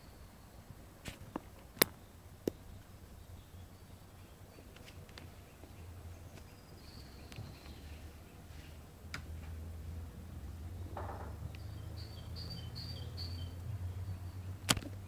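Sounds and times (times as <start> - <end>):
small sharp clicks: 14.6 - 15.0.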